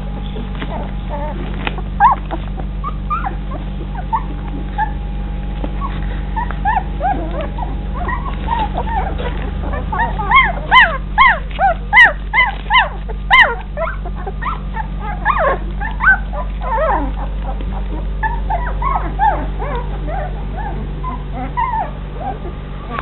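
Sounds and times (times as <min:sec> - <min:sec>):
puppies whining and yelping: 0:00.0 - 0:23.0.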